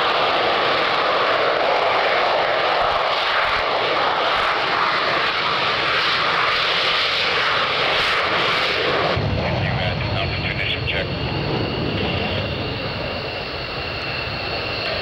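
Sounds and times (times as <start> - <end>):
jet engine roar: 0.0 - 15.0.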